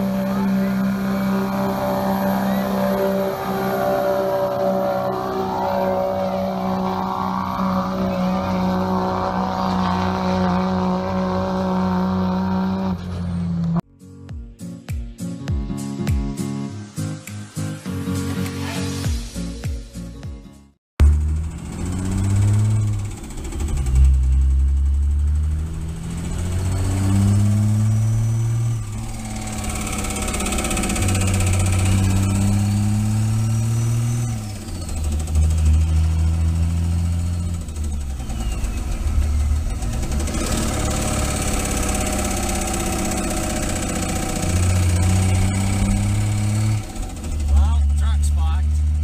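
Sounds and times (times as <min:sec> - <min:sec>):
turbo whistle: 0:00.0 - 0:08.6, 0:37.9 - 0:39.6
diesel engine revving: 0:00.0 - 0:13.8, 0:21.0 - 0:49.0.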